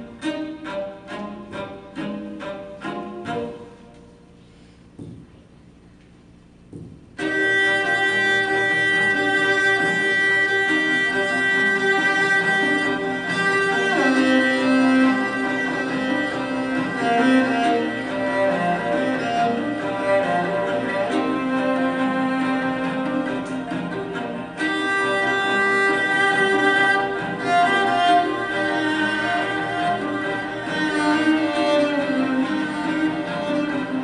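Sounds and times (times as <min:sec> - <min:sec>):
bowed cello notes: 0:00.0 - 0:34.0
soft knock: 0:05.0 - 0:05.4, 0:06.7 - 0:07.2.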